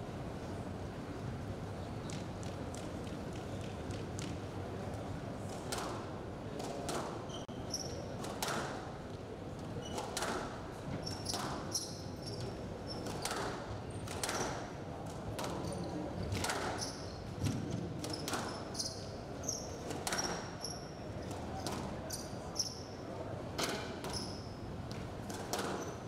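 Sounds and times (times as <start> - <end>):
shoes squeaking on court floor: 7.2 - 8.2, 9.6 - 10.3, 10.9 - 14.4, 16.6 - 23.0, 24.0 - 26.0
squash ball hitting rackets and walls: 10.0 - 11.8, 12.4 - 15.7, 17.5 - 18.6, 24.9 - 26.0.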